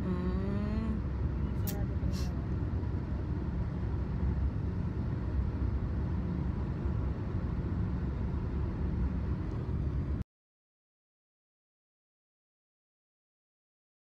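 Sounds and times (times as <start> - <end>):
car interior road rumble: 0.0 - 10.2.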